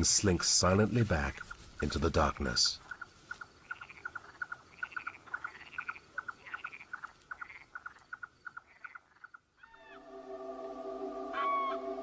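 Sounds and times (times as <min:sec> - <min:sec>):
frogs calling: 0:02.2 - 0:10.0
soft warbling calls: 0:09.6 - 0:12.0.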